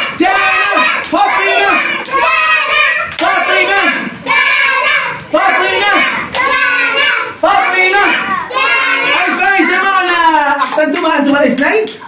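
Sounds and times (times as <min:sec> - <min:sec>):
children chanting: 0:00.0 - 0:10.1
hand clapping: 0:00.2 - 0:04.6, 0:05.2 - 0:07.0, 0:09.8 - 0:12.0.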